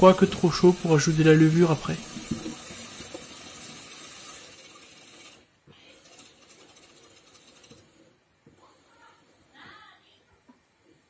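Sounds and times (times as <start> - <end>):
tap water pouring into glass jug: 0.1 - 5.0.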